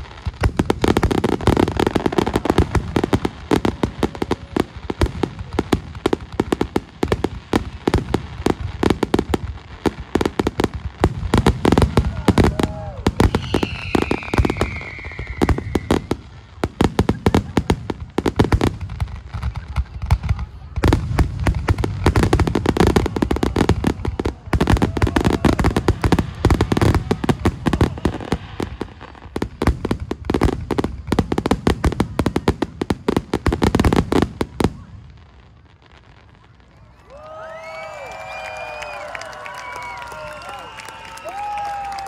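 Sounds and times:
fireworks bursting with crackle: 0:00.0 - 0:42.0
falling firework whistle: 0:12.0 - 0:16.3, 0:36.7 - 0:42.0.

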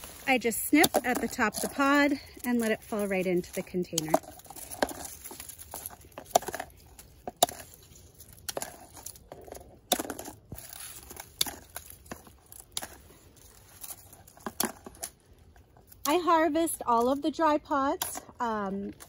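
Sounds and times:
dry pods and leaves rustling: 0:00.0 - 0:19.0.

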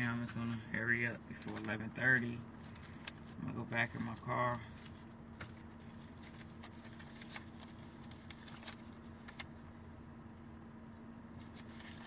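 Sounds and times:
car cabin hum: 0:00.0 - 0:12.0
handling clicks and rustles: 0:01.3 - 0:09.7.

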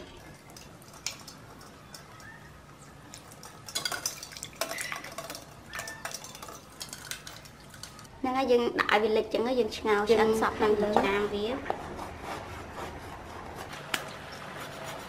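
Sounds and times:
eggs clinking on metal bowl: 0:00.0 - 0:08.1.

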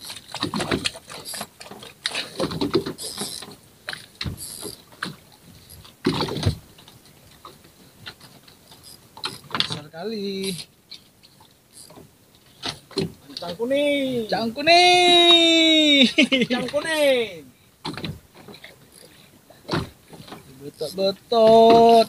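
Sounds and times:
rustles: 0:00.0 - 0:22.0
water sounds: 0:00.0 - 0:22.0
spinning reel winding: 0:03.0 - 0:03.5, 0:04.4 - 0:04.8
knocks on a boat: 0:19.7 - 0:20.4, 0:21.4 - 0:22.0.

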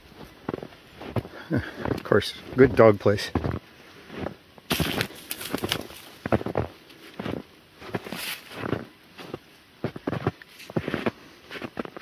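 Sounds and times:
footsteps crunching in wet snow: 0:00.0 - 0:12.0
brushing through reeds: 0:04.7 - 0:06.4, 0:07.9 - 0:08.7.

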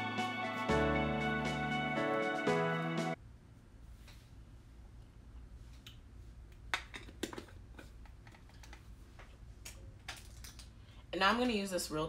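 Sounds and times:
low room hum: 0:03.2 - 0:12.0.

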